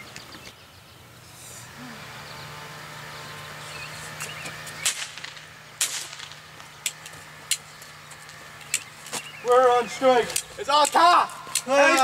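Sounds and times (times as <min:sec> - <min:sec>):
steady low hum: 0:00.0 - 0:12.0
sharp clicks: 0:04.2 - 0:09.6, 0:10.2 - 0:12.0.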